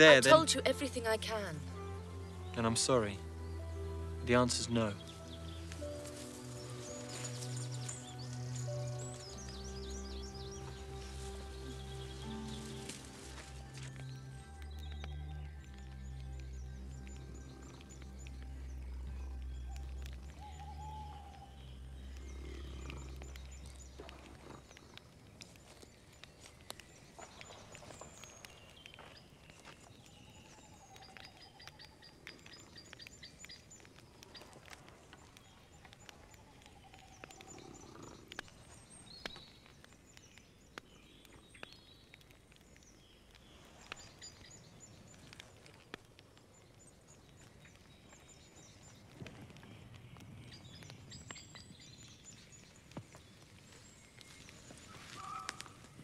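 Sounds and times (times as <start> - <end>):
bird calls and chirps: 0.0 - 56.0
faint clicks: 13.8 - 56.0
wavering calls: 54.3 - 56.0.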